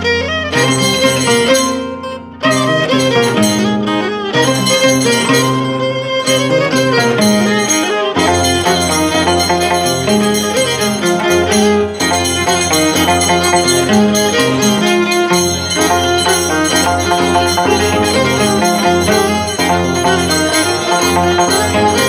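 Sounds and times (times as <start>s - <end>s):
violin playing a quick tune: 0.0s - 22.0s
bass line: 2.6s - 22.0s.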